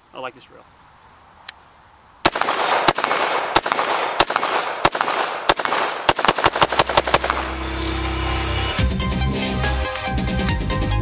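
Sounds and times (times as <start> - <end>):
rifle shots: 2.2 - 7.9
electronic music with steady beat: 6.9 - 11.0.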